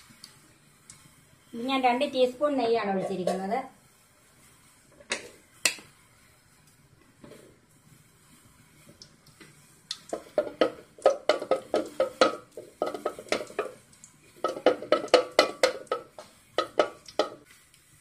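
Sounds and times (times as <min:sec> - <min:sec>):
wooden spoon knocking on metal pot: 0:10.1 - 0:13.8, 0:14.4 - 0:17.4.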